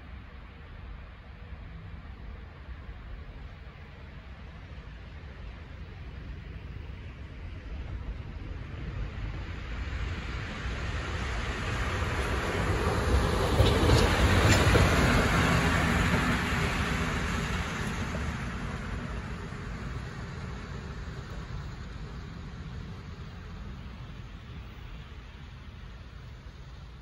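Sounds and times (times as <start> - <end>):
electric locomotive passing: 1.7 - 27.0
wheels clicking over rail joints: 11.9 - 21.4.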